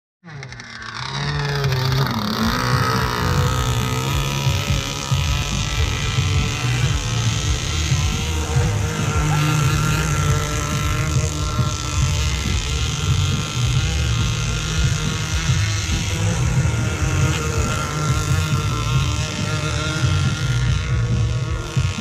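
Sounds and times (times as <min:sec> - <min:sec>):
racing boat motors whining: 0:00.2 - 0:22.0
low rumble: 0:00.6 - 0:22.0.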